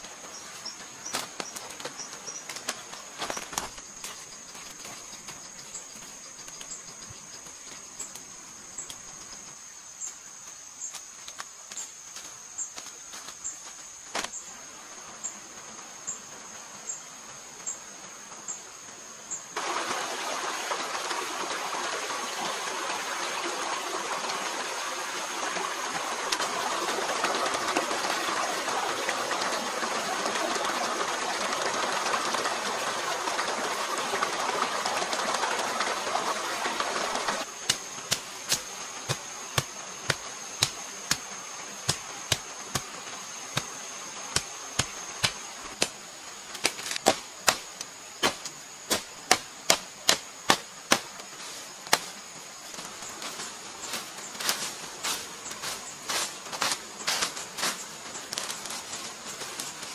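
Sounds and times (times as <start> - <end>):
stream running over stones: 0.0 - 59.9
high insect buzz: 37.3 - 59.9
blade chopping undergrowth: 37.4 - 52.2.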